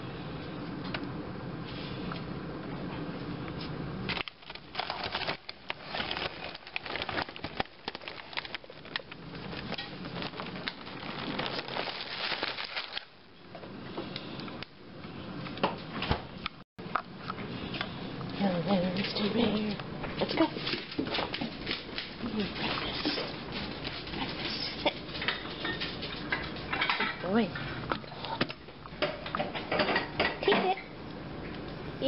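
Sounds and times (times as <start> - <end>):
plastic packaging crinkling: 4.1 - 13.2.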